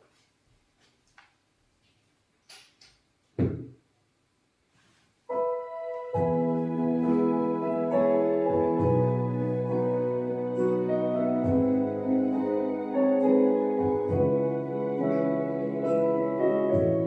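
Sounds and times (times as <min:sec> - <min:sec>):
thump: 0:03.4 - 0:03.7
piano keyboard chords: 0:05.3 - 0:17.0.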